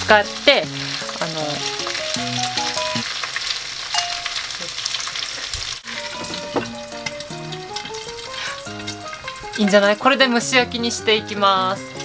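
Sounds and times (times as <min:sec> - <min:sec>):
eggs sizzling in frying pan: 0:00.0 - 0:12.0
simple melody: 0:00.8 - 0:03.1, 0:04.0 - 0:04.4, 0:05.8 - 0:12.0.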